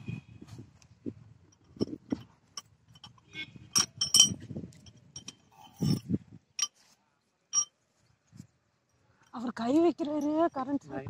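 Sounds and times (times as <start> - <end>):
hard objects clinking and knocking: 1.6 - 6.8, 7.5 - 7.7.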